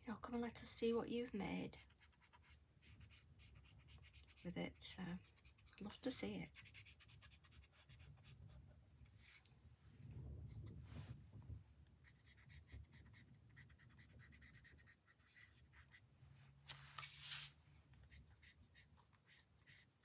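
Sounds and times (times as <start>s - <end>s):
marker scratching on card: 1.8s - 8.4s, 12.0s - 16.0s, 18.1s - 20.0s.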